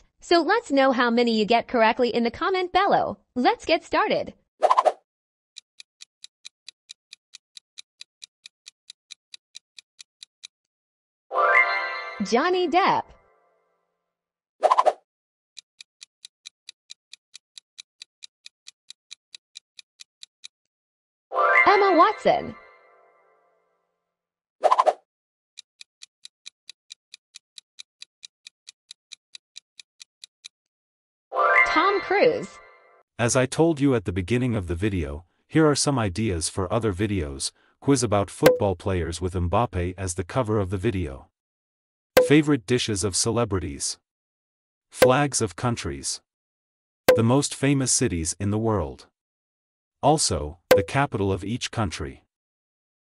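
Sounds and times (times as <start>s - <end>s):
steady timer ticks: 5.6s - 10.6s, 15.6s - 20.7s, 25.6s - 30.7s, 42.2s - 42.4s, 50.7s - 51.0s.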